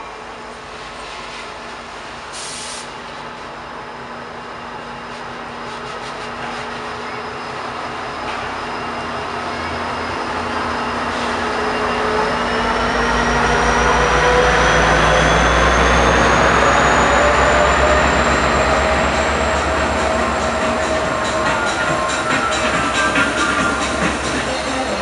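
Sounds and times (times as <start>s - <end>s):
train cars rolling past: 2.9s - 25.0s
locomotive low rumble: 3.0s - 25.0s
high squeal rising in pitch: 7.2s - 25.0s.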